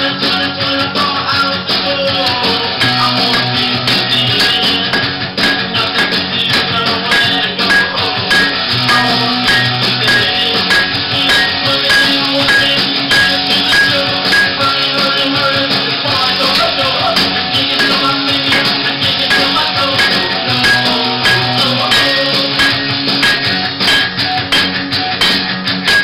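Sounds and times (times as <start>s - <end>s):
percussive beat: 2.2s - 26.0s.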